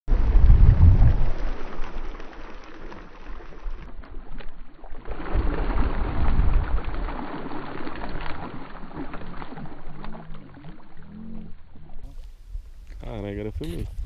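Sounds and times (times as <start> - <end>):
wind rumbling on microphone: 0.1 - 2.2, 5.1 - 14.0
small fish splashing: 1.0 - 11.4.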